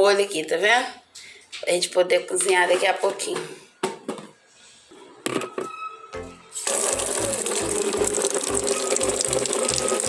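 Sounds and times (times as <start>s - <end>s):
water running into plastic bucket: 6.6s - 10.0s.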